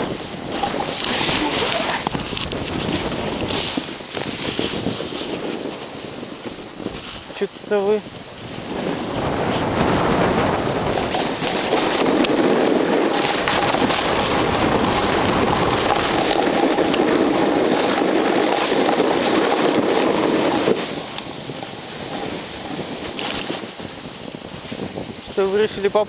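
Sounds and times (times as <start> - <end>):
wind on microphone: 0.0 - 26.0
snow hissing under skis: 0.1 - 7.2, 11.6 - 25.5.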